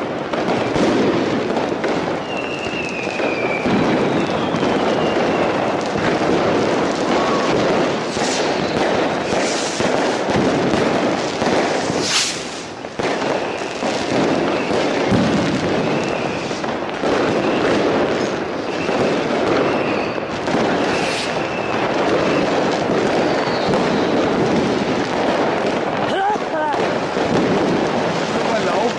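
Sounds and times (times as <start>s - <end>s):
firework whistles: 0.0s - 26.0s
fireworks crackling and banging: 0.0s - 28.9s
loud firework hiss: 0.0s - 28.9s.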